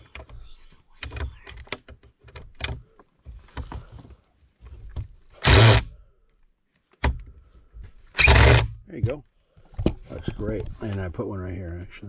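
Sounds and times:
impact driver driving screw: 5.4 - 5.9, 8.2 - 8.7.

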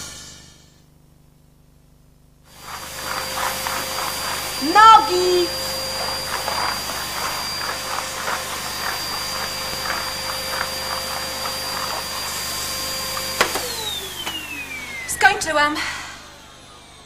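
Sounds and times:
vacuum cleaner running: 2.4 - 17.0
vacuum floor head on rug: 2.5 - 17.0
vacuum switch click: 13.2 - 14.5.

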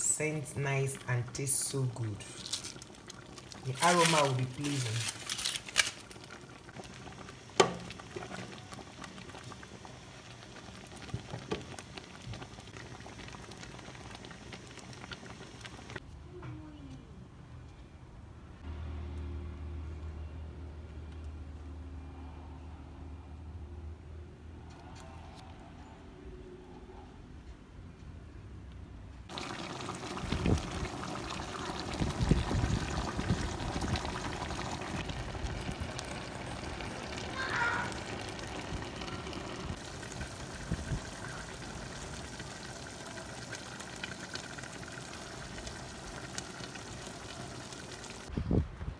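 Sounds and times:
soup bubbling in a pot: 1.0 - 16.0, 29.3 - 48.3.

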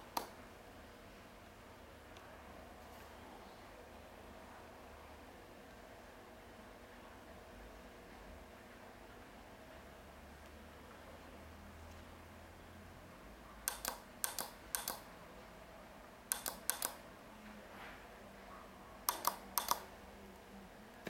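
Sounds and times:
push-button switch clicking: 13.7 - 15.0, 16.3 - 17.0, 19.1 - 19.8.

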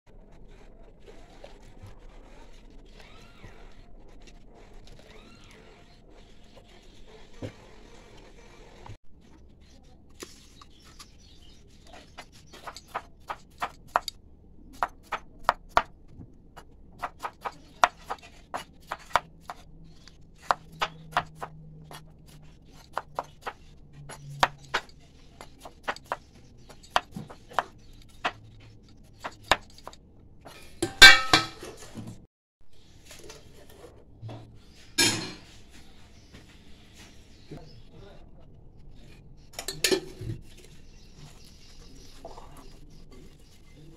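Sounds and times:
knife chopping on wooden board: 16.6 - 19.6, 20.4 - 22.0.

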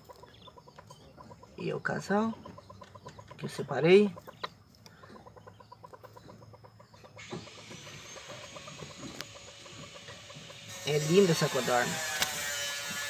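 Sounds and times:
quail clucking: 0.0 - 12.4.

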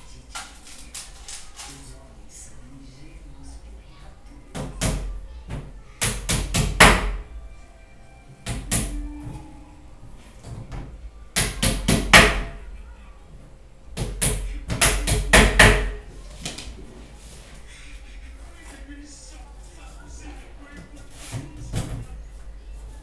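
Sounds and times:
hammer blows on wooden panel: 4.6 - 7.3, 11.4 - 12.6, 14.0 - 16.1.

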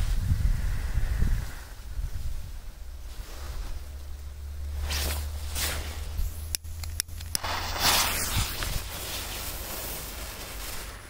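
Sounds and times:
wind rumbling on microphone: 0.0 - 11.0
rustling: 2.1 - 11.0
sharp clicks: 6.5 - 7.6.

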